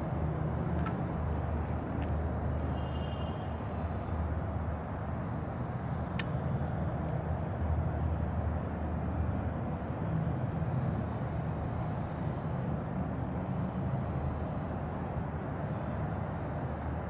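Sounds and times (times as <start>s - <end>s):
distant traffic rumble: 0.0s - 17.0s.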